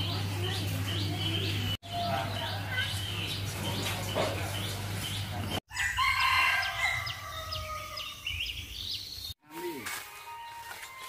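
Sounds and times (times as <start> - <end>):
small birds chirping: 0.0 - 5.6, 6.6 - 9.4
rooster crowing: 5.7 - 8.2.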